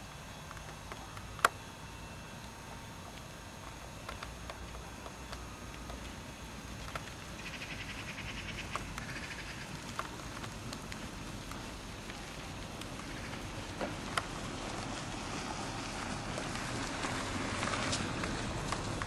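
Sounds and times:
outdoor background hiss: 0.0s - 19.0s
horse hooves on sand: 2.4s - 19.0s
rapid high ticking: 3.1s - 14.8s.

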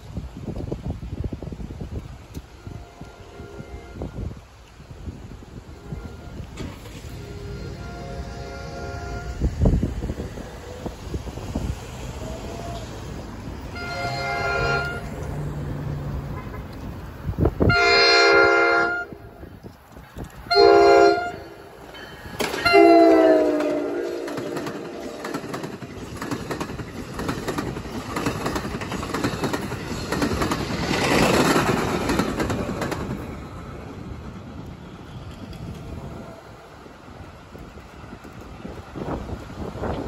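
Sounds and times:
train wheels on rails: 0.0s - 17.8s, 18.9s - 40.0s
train horn blasts: 2.4s - 4.5s, 5.6s - 9.7s, 13.7s - 15.2s, 16.3s - 16.8s, 17.6s - 19.4s, 20.4s - 21.7s, 22.5s - 25.3s.

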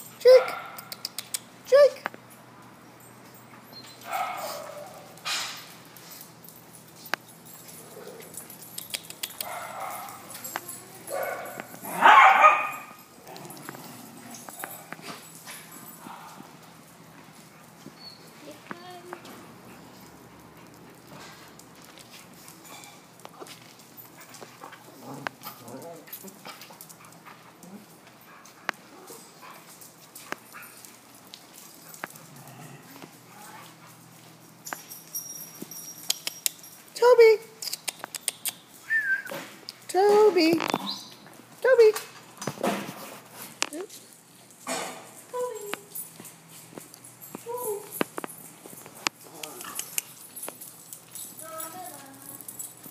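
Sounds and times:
dogs barking: 0.2s - 1.0s, 4.0s - 5.2s, 9.4s - 13.1s.

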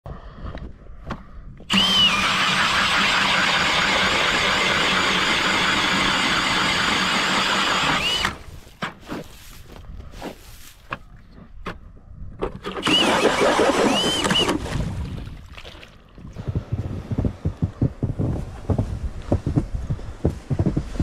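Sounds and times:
cordless drill whining: 1.7s - 8.5s, 12.8s - 14.6s.

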